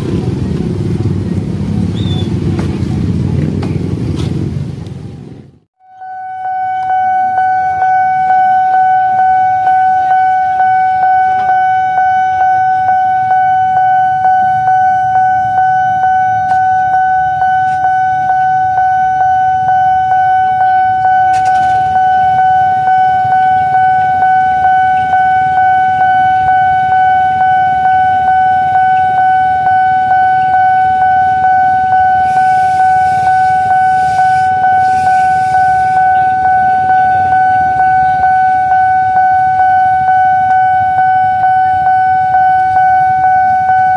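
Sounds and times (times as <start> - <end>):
road traffic rumble: 0.0 - 43.9
level crossing alarm pulsing: 5.8 - 43.9.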